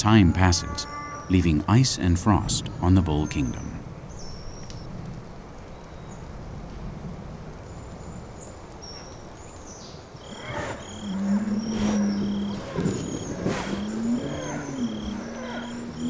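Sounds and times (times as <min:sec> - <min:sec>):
small birds chirping: 0:00.0 - 0:04.9, 0:07.6 - 0:16.0
bull lowing: 0:10.2 - 0:16.0
bull snorting: 0:10.3 - 0:16.0.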